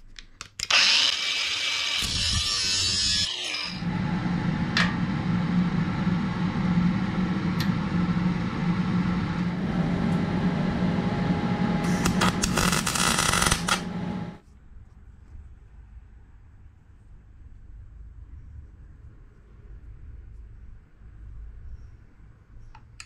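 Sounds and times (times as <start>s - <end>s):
angle grinder cutting metal: 0.7s - 3.8s, 11.8s - 14.4s.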